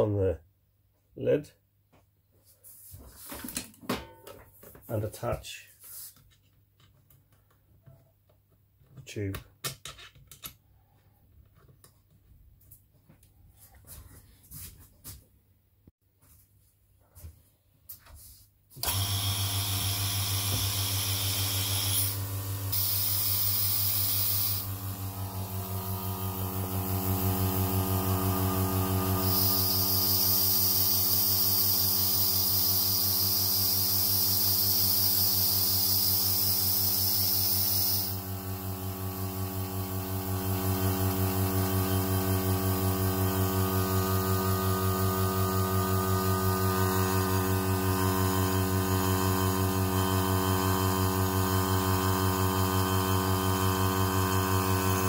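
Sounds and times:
vacuum pump humming: 18.8 - 55.0
air hissing: 21.0 - 24.7, 29.2 - 38.2.

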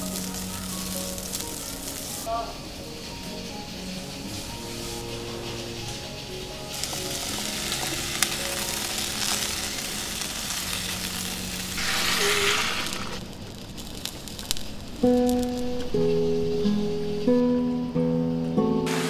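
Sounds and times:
vegetables sizzling in a pot: 0.0 - 17.2
soft plucked guitar music: 15.0 - 19.0.

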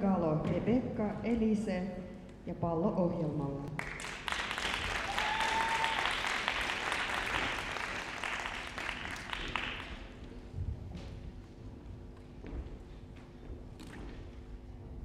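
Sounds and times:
audience applauding: 3.8 - 10.2.

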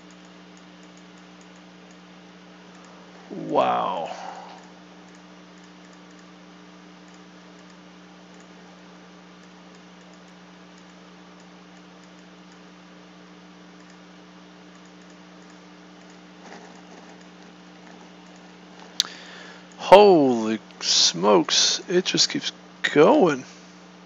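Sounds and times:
faint computer clicks: 0.0 - 2.1, 4.5 - 6.4, 7.0 - 8.6, 9.4 - 12.7, 13.8 - 14.0, 14.7 - 19.8
low hum and hiss: 0.0 - 24.0.

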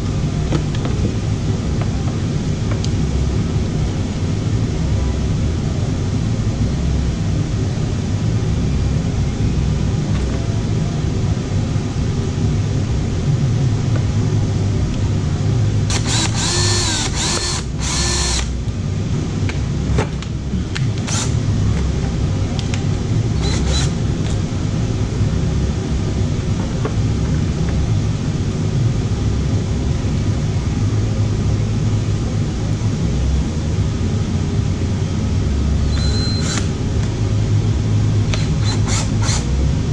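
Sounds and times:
steady low hum: 0.0 - 39.9
cordless drill whining: 15.9 - 18.5, 21.1 - 21.3, 23.4 - 24.0, 36.0 - 36.7, 38.4 - 39.4.

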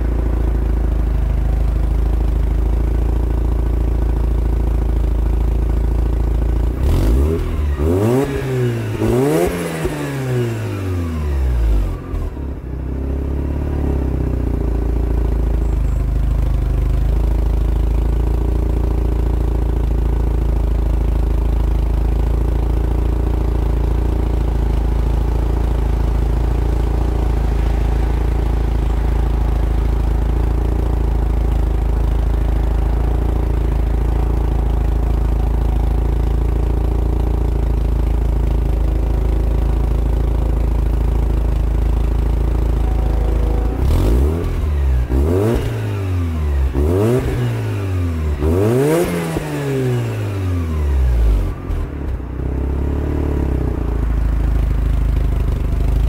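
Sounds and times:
rotary engine idling and revving: 0.0 - 56.0.

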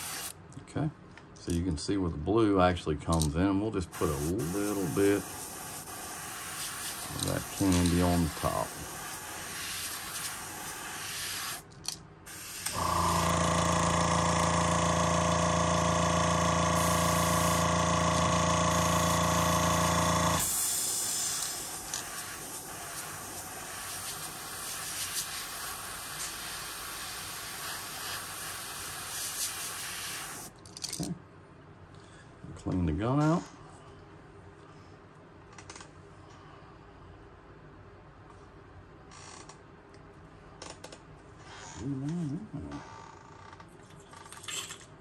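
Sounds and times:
airbrush hissing: 0.0 - 0.3, 3.9 - 11.6, 12.3 - 13.4, 16.8 - 17.8, 18.6 - 30.5
motor humming: 12.6 - 20.5.

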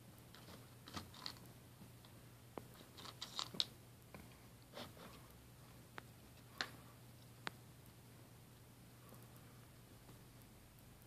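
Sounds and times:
cat crunching dry kibble: 0.4 - 1.5, 2.8 - 3.7.

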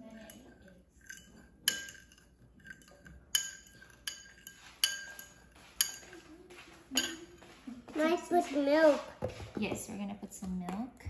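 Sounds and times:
fork clinking against ceramic bowl: 0.0 - 6.3, 7.0 - 7.4.

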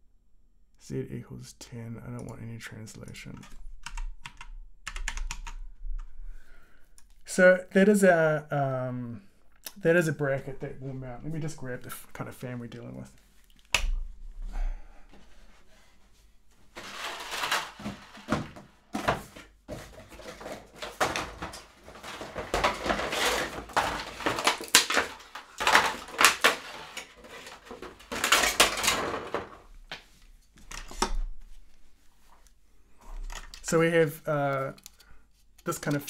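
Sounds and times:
rustling and handling objects: 9.5 - 36.0.

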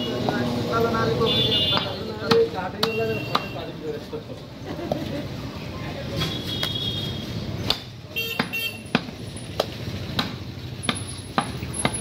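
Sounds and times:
knife chopping meat on block: 1.7 - 3.5, 7.6 - 10.4.

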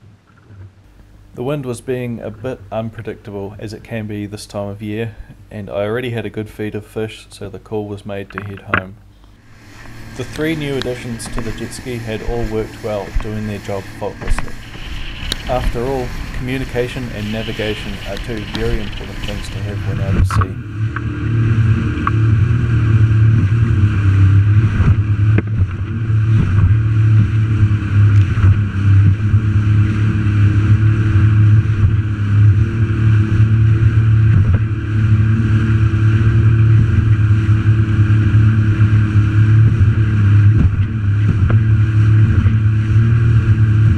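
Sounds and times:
jet ski engine running: 8.1 - 43.9
water rushing against hull: 8.3 - 43.9.

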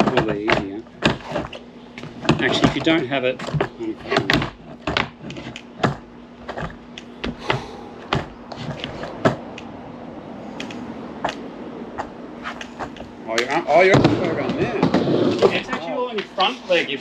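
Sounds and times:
skateboard knocks and clacks: 2.2 - 7.5
skateboard wheels rolling: 10.6 - 17.0.

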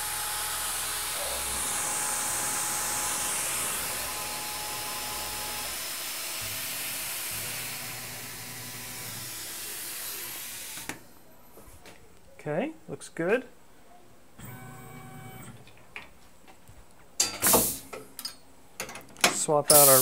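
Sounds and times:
coolant spraying hiss: 0.0 - 4.4, 17.4 - 17.9, 19.7 - 20.0
drill spindle whine: 0.0 - 10.9.

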